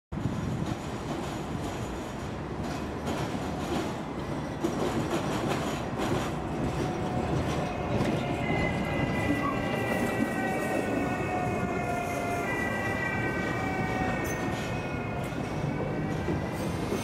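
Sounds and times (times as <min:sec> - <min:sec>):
tram wheels rumbling on rail: 0:00.1 - 0:17.0
high wheel squeal: 0:06.7 - 0:17.0.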